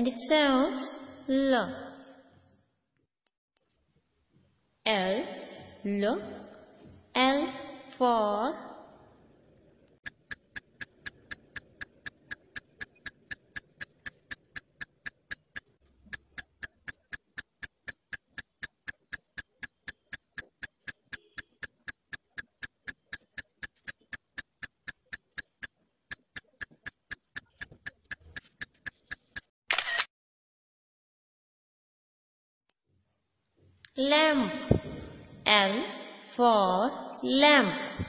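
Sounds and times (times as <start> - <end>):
clock ticking: 10.0 - 29.5.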